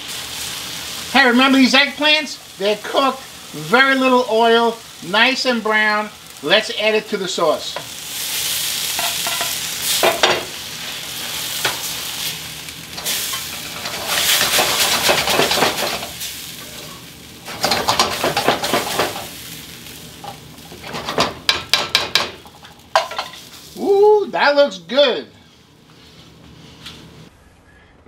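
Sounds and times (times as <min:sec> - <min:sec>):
vegetables sizzling in a wok: 0:00.0 - 0:27.3
spatula scraping and clicking on wok: 0:08.8 - 0:10.5, 0:11.2 - 0:11.9, 0:12.9 - 0:19.3.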